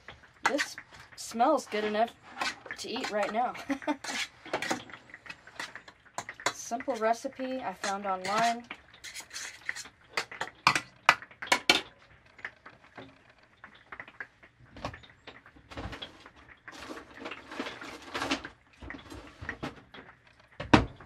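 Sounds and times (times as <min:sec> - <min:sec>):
metal spoon scraping metal pan: 0:00.4 - 0:10.9
handling knocks and rustles: 0:14.7 - 0:21.0.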